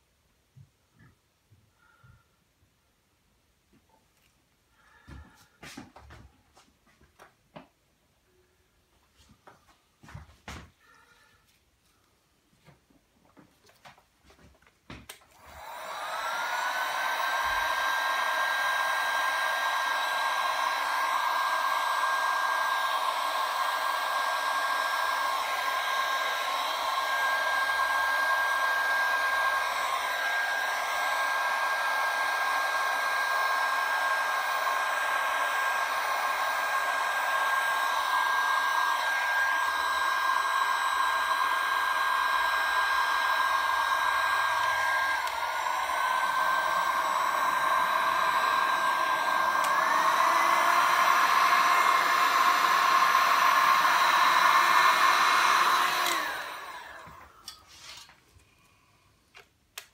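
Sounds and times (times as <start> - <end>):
heat gun whining: 15.0 - 58.1.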